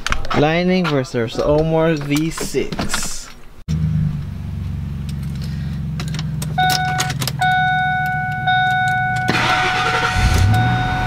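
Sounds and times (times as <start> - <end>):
truck engine idling: 3.7 - 11.0.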